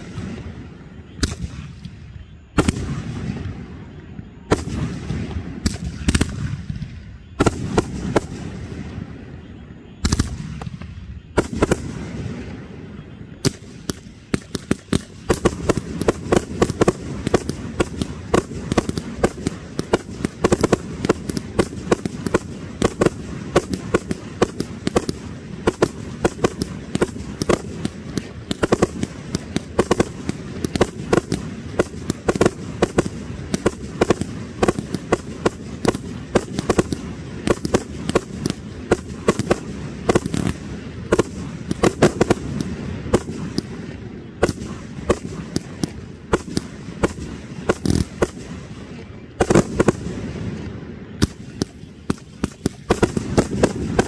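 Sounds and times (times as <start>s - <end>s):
fireworks bangs and crackles: 0.0s - 54.0s.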